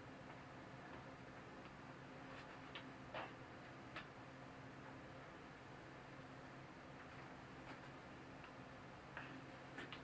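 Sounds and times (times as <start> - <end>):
faint low hum: 0.0 - 10.0.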